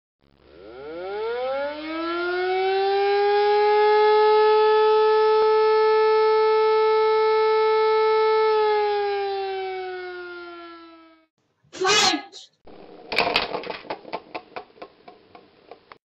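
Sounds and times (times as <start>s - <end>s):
siren winding: 0.5s - 2.0s.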